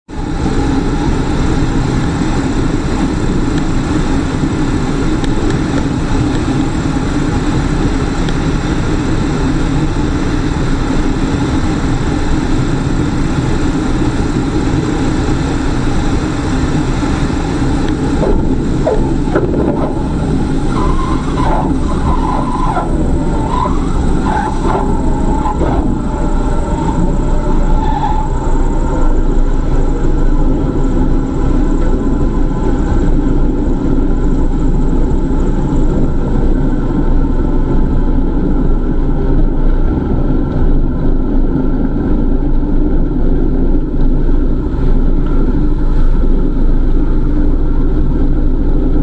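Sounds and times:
rushing airflow in airplane cabin: 0.1s - 49.0s
wavering tones: 17.7s - 30.0s.

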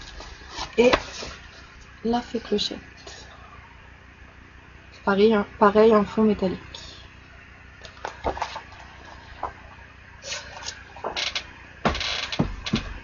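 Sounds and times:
paper rustling: 8.0s - 9.6s.

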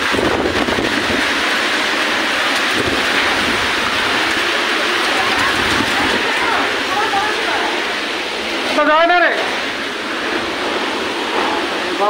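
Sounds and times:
wind buffeting microphone: 0.0s - 1.7s, 2.6s - 6.9s
heavy rain: 0.0s - 12.0s.

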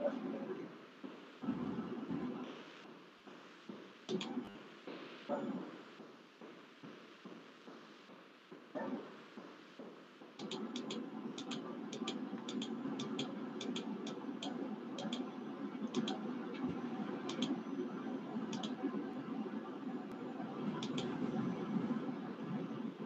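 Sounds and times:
steady background hum: 0.0s - 23.0s
computer mouse clicking: 4.1s - 4.4s, 10.4s - 15.2s, 15.9s - 16.2s, 17.3s - 17.6s, 18.5s - 18.8s, 20.8s - 21.1s.

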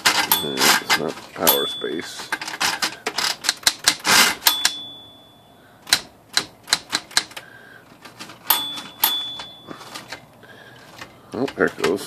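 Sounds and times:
typewriter clacking: 0.0s - 4.8s, 5.8s - 10.2s, 10.8s - 12.0s
typewriter carriage bell dinging: 0.0s - 7.3s, 8.4s - 10.2s.

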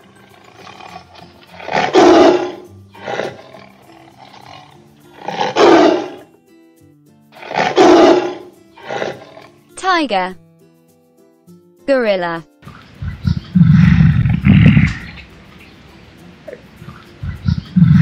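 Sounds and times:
tiger growling: 0.0s - 6.3s, 7.4s - 9.6s, 13.1s - 15.3s, 16.4s - 18.0s
tiger roaring: 0.0s - 6.3s, 7.4s - 9.6s, 13.5s - 15.3s
soft background music: 0.0s - 18.0s.

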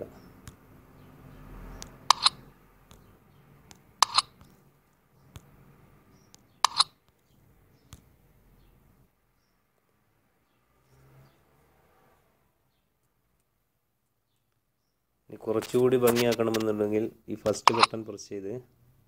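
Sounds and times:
computer mouse clicking: 1.7s - 4.6s, 6.2s - 7.2s, 17.5s - 18.0s.

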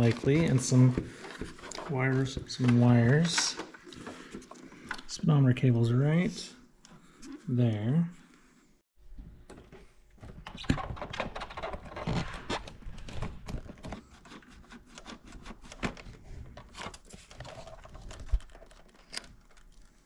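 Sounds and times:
plastic parts scraping and clicking: 0.0s - 5.2s, 9.5s - 20.0s.

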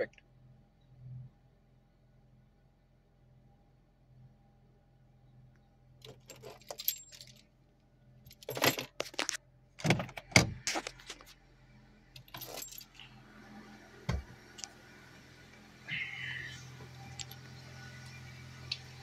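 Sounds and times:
metallic clinking and jangling: 6.0s - 7.5s, 8.3s - 9.2s, 12.2s - 13.1s
car engine idling: 11.3s - 19.0s.

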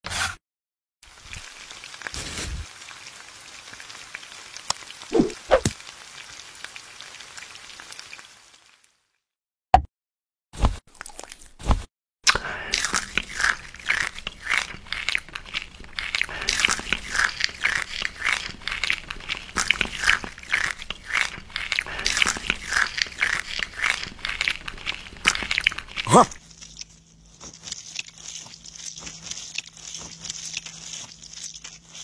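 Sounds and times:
crunchy food chewing: 12.3s - 32.0s.

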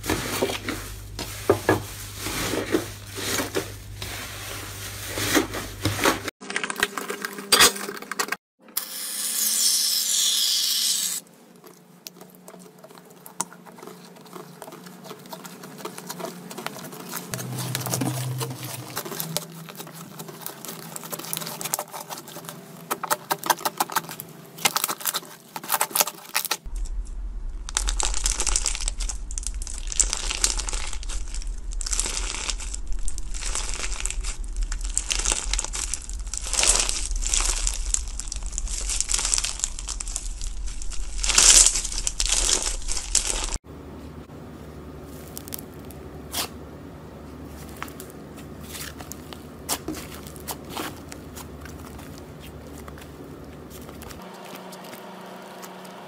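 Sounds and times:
crunchy slime crunching: 11.5s - 43.6s, 45.0s - 46.6s, 47.4s - 56.0s
low hum: 14.2s - 20.9s, 26.7s - 56.0s.

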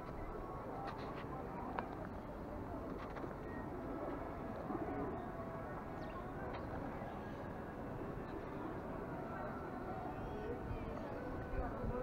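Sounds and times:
outdoor background hum: 0.0s - 12.0s.

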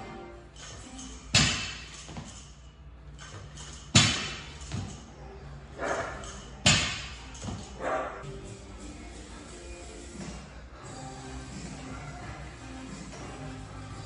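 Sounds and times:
barbell thudding on rubber floor: 1.3s - 2.4s, 3.3s - 5.0s, 5.8s - 7.8s.

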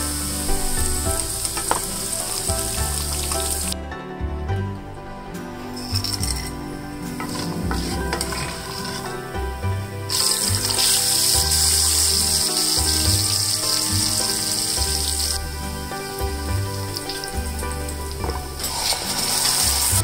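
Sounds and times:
onions sizzling in hot oil: 0.0s - 3.8s, 7.2s - 9.3s, 9.9s - 20.0s
music with bass beat: 0.0s - 20.0s.

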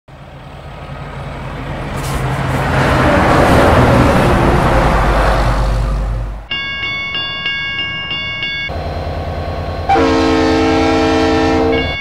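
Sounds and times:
vehicle driving past: 0.2s - 6.5s.

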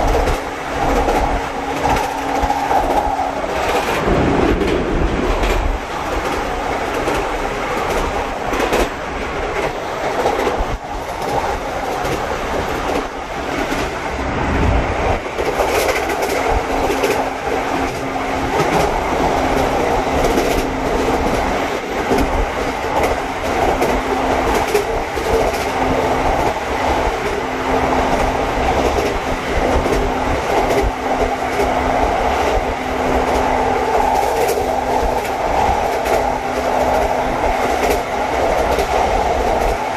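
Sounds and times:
train wheels on rail: 0.0s - 39.9s.

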